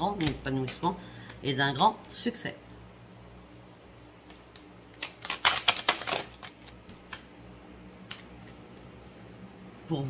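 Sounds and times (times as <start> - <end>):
cards being shuffled: 4.2 - 7.3.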